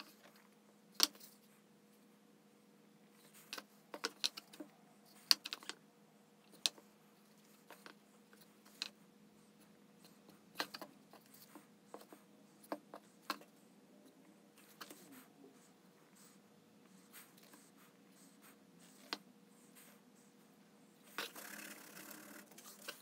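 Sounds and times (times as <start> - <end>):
faint steady hum: 0.0 - 23.0
paper cups clicking and tapping: 3.5 - 5.8.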